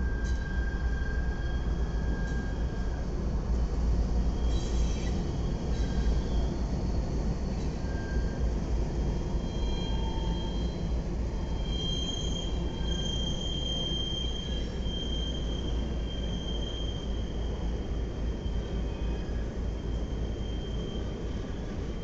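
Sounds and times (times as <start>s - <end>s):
high wheel squeal: 9.4s - 17.7s.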